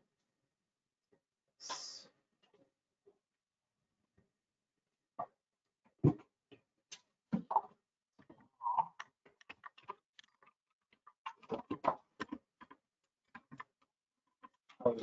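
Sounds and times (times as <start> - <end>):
clicks and taps: 6.0 - 14.8.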